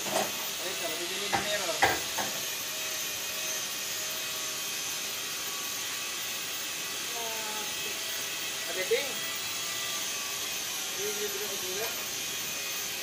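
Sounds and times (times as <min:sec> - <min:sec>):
workshop background hiss: 0:00.0 - 0:13.0
sharp knock: 0:01.3 - 0:02.3.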